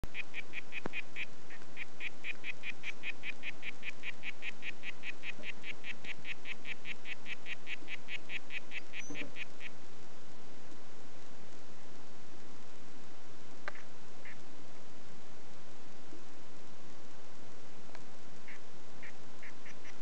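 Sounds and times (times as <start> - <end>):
frog calling: 0.1 - 9.8, 13.7 - 14.4, 18.4 - 20.0.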